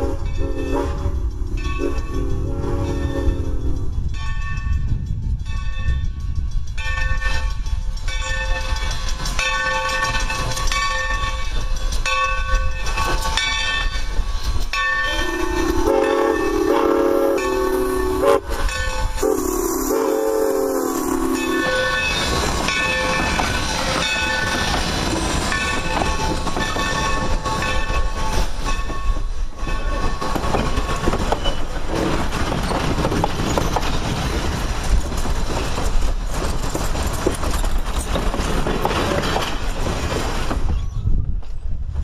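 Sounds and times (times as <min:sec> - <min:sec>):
steam whistle: 0:00.0 - 0:01.2, 0:01.8 - 0:03.8, 0:15.1 - 0:18.6, 0:19.2 - 0:22.0
wheels clicking over rail joints: 0:00.0 - 0:20.0, 0:21.1 - 0:41.9
train coaches rumbling past: 0:00.0 - 0:42.0.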